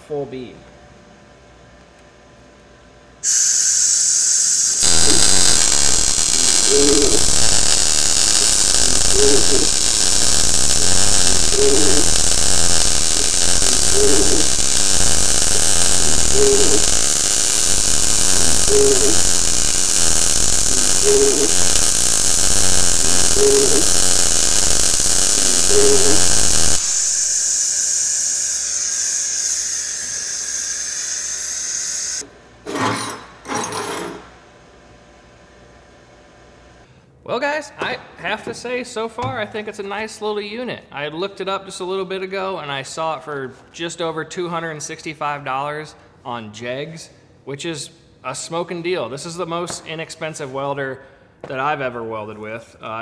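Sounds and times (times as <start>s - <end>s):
steady hiss: 3.3s - 32.2s
welding arc crackling: 3.3s - 32.2s.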